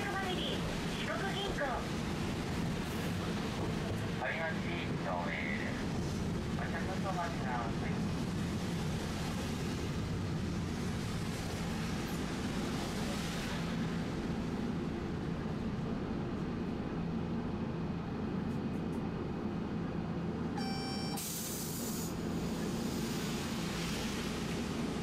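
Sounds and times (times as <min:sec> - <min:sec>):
heavy rain: 0:00.0 - 0:15.4
streetcar motors humming: 0:00.0 - 0:25.0
short beep: 0:20.6 - 0:21.3.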